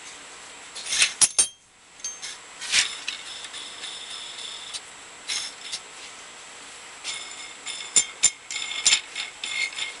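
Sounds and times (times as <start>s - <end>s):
metallic clinks and taps: 1.2s - 5.8s, 7.0s - 10.0s.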